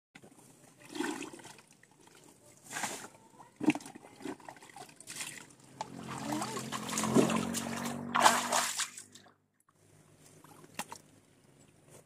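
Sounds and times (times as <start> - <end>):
water splashing: 3.6 - 9.3.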